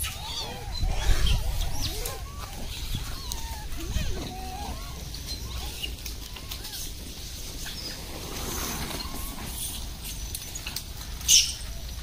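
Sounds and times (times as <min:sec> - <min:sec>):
monkey calls: 0:00.0 - 0:08.0
rustling and clicking: 0:01.6 - 0:12.0.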